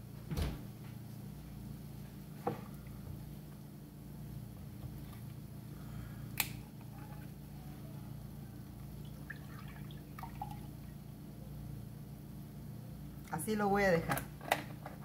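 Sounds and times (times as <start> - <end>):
steady low hum: 0.0 - 15.0
milk pouring into a glass: 9.1 - 10.9.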